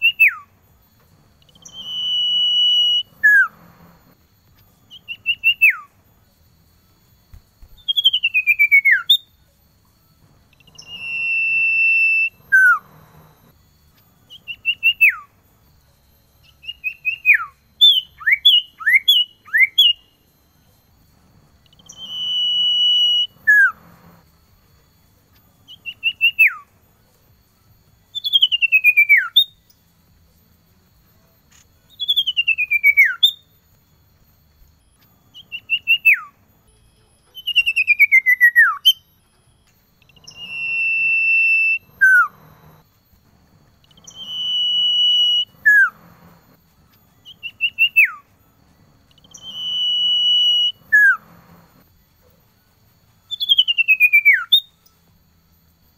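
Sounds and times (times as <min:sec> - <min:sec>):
bird singing whistles: 0:00.0 - 0:00.6, 0:01.4 - 0:04.2, 0:04.9 - 0:06.0, 0:07.2 - 0:09.4, 0:10.4 - 0:13.5, 0:14.2 - 0:15.4, 0:16.4 - 0:20.6, 0:21.6 - 0:24.3, 0:25.6 - 0:26.8, 0:28.1 - 0:29.8, 0:31.9 - 0:33.5, 0:34.8 - 0:36.4, 0:37.0 - 0:39.2, 0:39.9 - 0:42.8, 0:43.7 - 0:46.6, 0:47.2 - 0:48.4, 0:49.0 - 0:51.8, 0:53.2 - 0:54.9.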